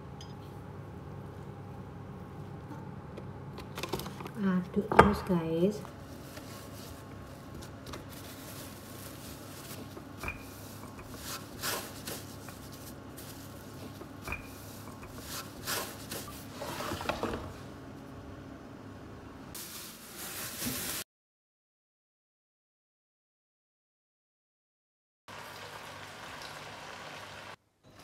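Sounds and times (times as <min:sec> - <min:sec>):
plastic sheeting rustling: 0:06.0 - 0:14.0, 0:19.6 - 0:21.1.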